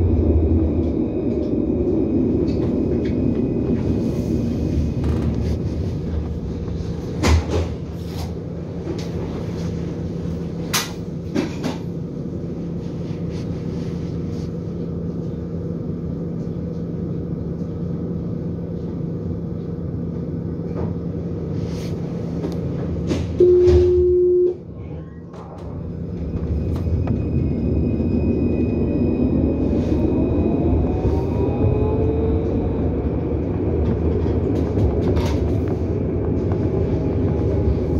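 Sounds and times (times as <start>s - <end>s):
tram equipment hum: 0.0s - 37.9s
tram motor whine: 0.0s - 37.9s
door warning tone: 23.4s - 24.6s.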